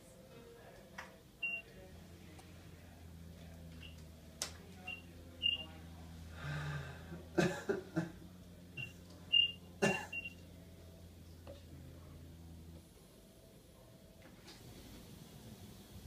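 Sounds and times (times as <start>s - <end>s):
low steady hum: 0.0s - 16.0s
high electronic beeps: 1.4s - 1.7s, 4.9s - 5.7s, 8.8s - 10.4s.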